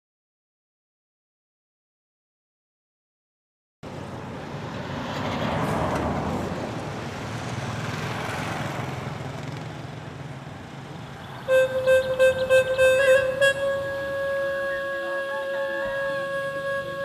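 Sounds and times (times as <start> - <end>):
road traffic passing: 3.8 - 17.0
flute held note: 11.5 - 17.0.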